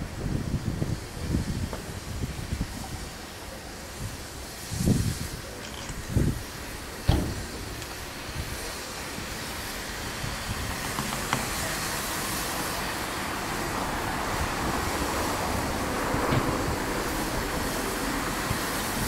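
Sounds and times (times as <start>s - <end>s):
steam locomotive hissing steam: 0.0s - 19.0s.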